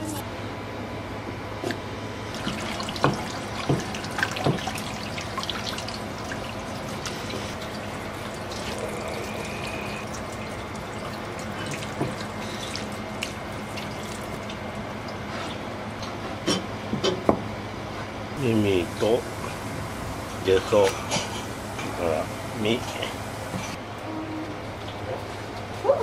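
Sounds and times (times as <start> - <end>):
tap water running into sink: 2.3 - 15.2.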